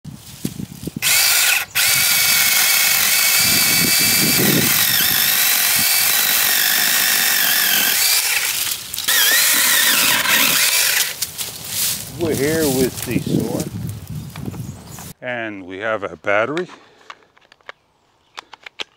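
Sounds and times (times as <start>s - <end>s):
mini chainsaw cutting branch: 1.0s - 11.4s.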